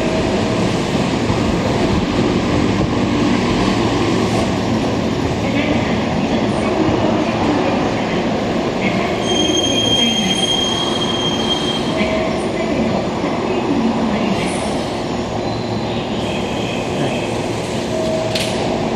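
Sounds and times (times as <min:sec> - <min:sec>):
high steady brake squeal: 0:09.2 - 0:12.0.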